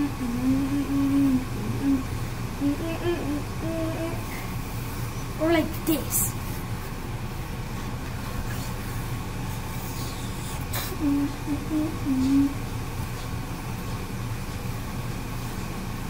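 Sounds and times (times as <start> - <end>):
child humming: 0.0 - 4.5, 9.8 - 12.6
steady low hum: 0.0 - 16.0.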